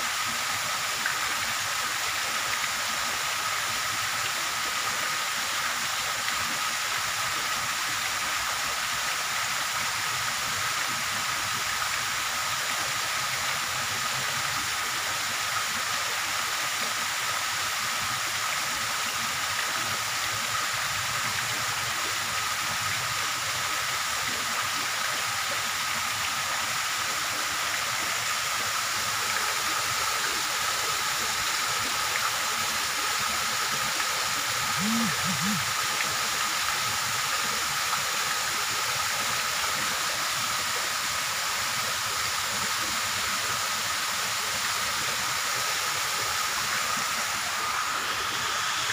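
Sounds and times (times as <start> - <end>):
steady hiss: 0.0 - 48.9
faint constant high tone: 34.5 - 36.8.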